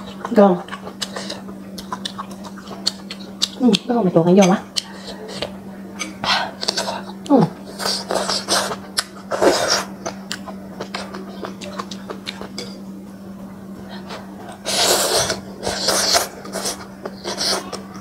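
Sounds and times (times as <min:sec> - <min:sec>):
person chewing: 0:00.0 - 0:03.7, 0:06.5 - 0:12.6, 0:13.9 - 0:18.0
slurping noodles: 0:14.6 - 0:17.8.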